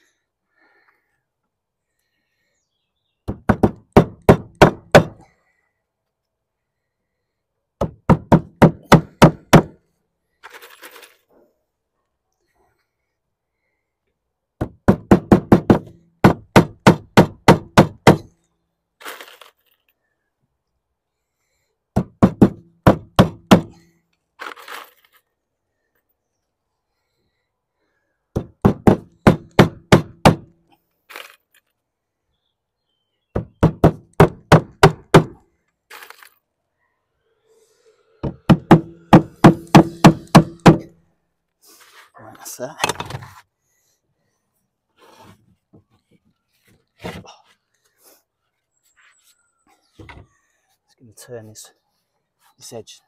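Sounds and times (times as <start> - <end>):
hammer driving nails: 14.6 - 18.3, 28.4 - 30.5, 38.2 - 40.9.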